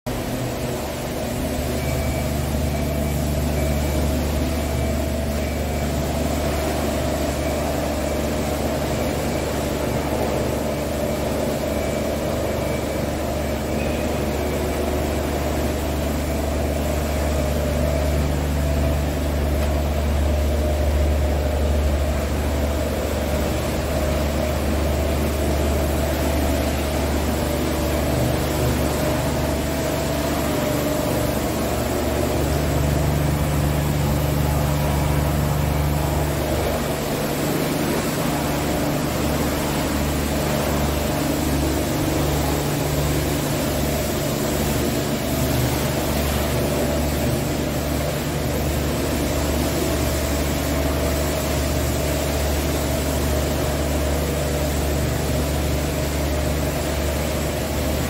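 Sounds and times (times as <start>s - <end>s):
diesel engine idling: 0.1s - 58.0s.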